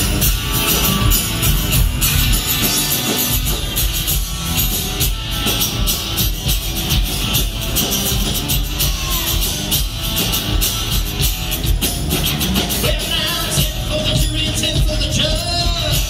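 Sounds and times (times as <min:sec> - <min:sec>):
live rock band playing: 0:00.0 - 0:16.0.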